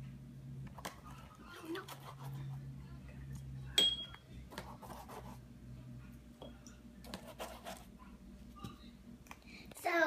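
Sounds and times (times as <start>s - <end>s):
low steady hum: 0.0s - 10.0s
paintbrush rubbing on paper: 7.1s - 7.9s.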